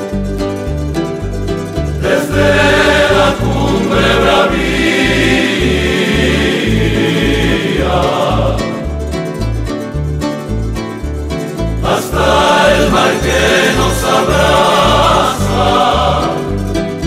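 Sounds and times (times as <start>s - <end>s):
bass line: 0.0s - 17.0s
choir singing: 2.0s - 9.0s, 11.8s - 17.0s.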